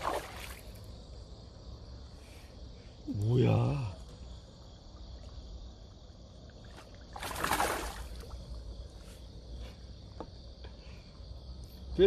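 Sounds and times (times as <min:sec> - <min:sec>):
water splash: 0:00.0 - 0:00.7, 0:06.7 - 0:08.4
crickets chirring: 0:00.0 - 0:12.0.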